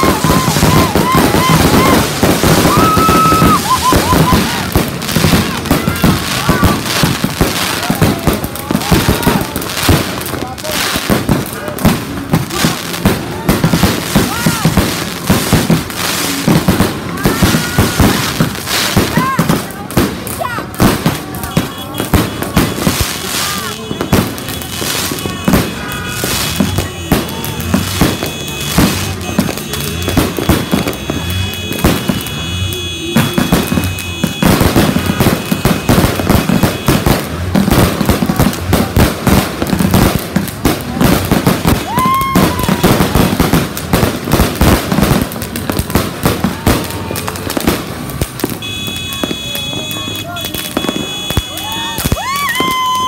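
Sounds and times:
rising firework whistle: 0:00.0 - 0:09.9, 0:41.7 - 0:43.6, 0:46.8 - 0:53.0
fireworks bangs: 0:00.0 - 0:53.0.

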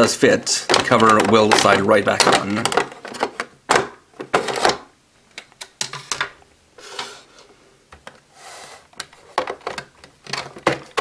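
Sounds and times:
plastic cover clicking and rattling: 0:00.0 - 0:06.4, 0:09.0 - 0:11.0
plastic toy clatter: 0:00.6 - 0:03.5, 0:09.1 - 0:11.0.

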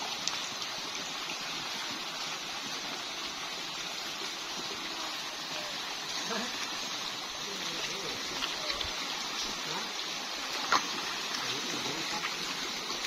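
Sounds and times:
stream flowing over stones: 0:00.0 - 0:13.0.

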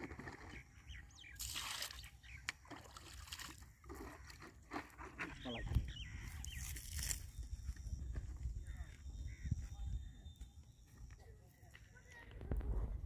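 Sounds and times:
pond water sloshing and splashing: 0:00.0 - 0:05.7, 0:06.4 - 0:07.3.

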